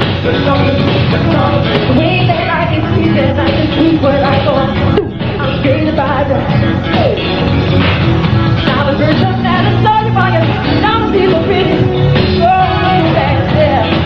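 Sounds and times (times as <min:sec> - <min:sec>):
male lead vocal: 0:00.0 - 0:02.2
live funk-pop band: 0:00.0 - 0:14.0.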